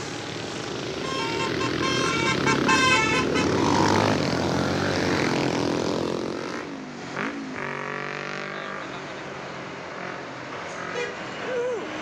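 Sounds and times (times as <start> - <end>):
bus engine drone approaching: 0.0 - 7.0
bus passing close by: 0.0 - 8.6.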